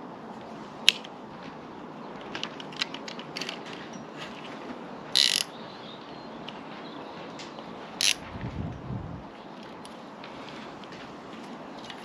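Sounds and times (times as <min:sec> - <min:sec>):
ratcheting rattle: 0:05.2 - 0:05.5, 0:08.0 - 0:08.2.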